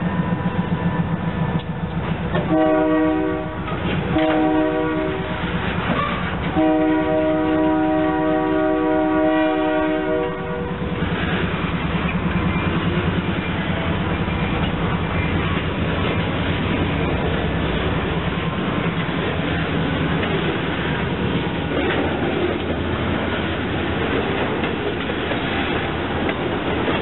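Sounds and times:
diesel locomotive rumble: 0:00.0 - 0:27.0
locomotive horn blasts: 0:02.4 - 0:10.9.

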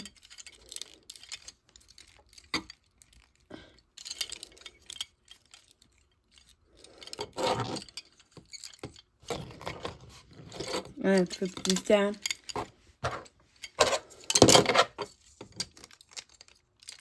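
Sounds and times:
plastic toy parts clicking: 0:13.6 - 0:17.0.

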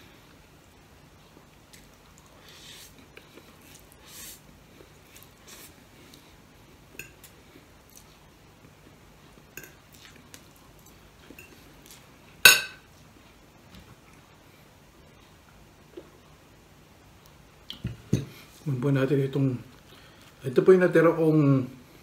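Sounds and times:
cutlery clinking on a plate: 0:12.5 - 0:12.8.

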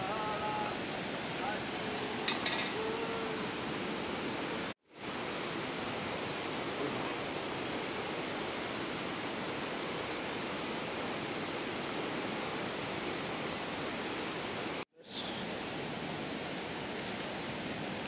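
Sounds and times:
river rushing over rapids: 0:00.0 - 0:18.0.

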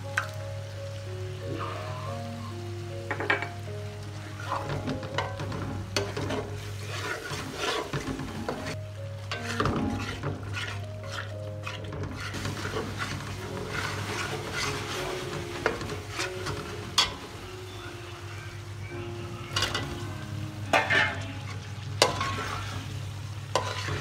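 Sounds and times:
frying sizzle: 0:00.0 - 0:24.0
metal spatula scraping a pan: 0:04.3 - 0:17.3, 0:19.5 - 0:20.1, 0:20.7 - 0:24.0.

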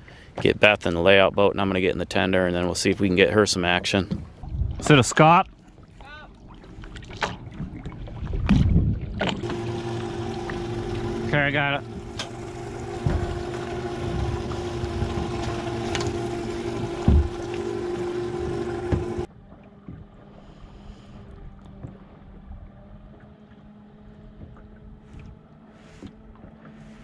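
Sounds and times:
faint wind and water: 0:00.0 - 0:27.0
low steady hum: 0:04.5 - 0:27.0
outboard motor idling: 0:09.2 - 0:20.4
knocks on boat hull: 0:17.0 - 0:17.4.

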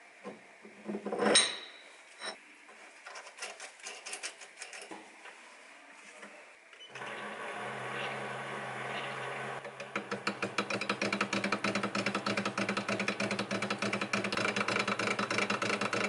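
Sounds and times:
lathe motor humming: 0:07.0 - 0:16.0
wrench tightening nut: 0:10.0 - 0:16.0.

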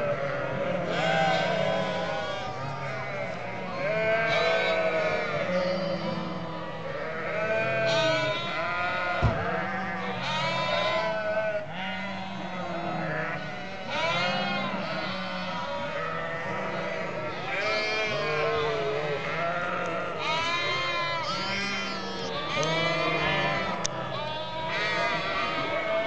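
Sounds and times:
sheep bleating: 0:00.0 - 0:26.0
sharp knock: 0:09.2 - 0:09.4.

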